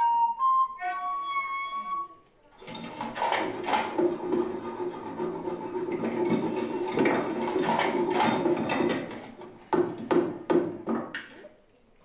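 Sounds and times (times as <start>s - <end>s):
rough scraping and rubbing: 2.8s - 8.5s
sharp knocks: 3.1s - 11.1s.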